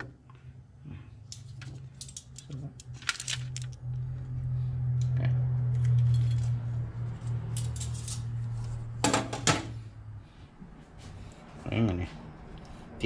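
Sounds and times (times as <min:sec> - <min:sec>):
low steady hum: 0:00.0 - 0:13.0
utensils clicking and clinking: 0:01.3 - 0:03.8, 0:07.2 - 0:08.4.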